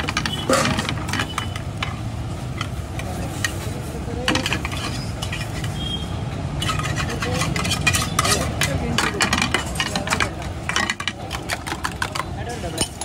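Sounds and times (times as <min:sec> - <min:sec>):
metal utensils knocking on pan: 0:00.0 - 0:02.0, 0:06.6 - 0:13.0.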